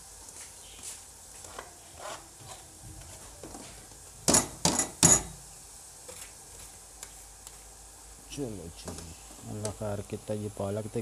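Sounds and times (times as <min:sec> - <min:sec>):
colander banging on pot: 0:04.3 - 0:05.4.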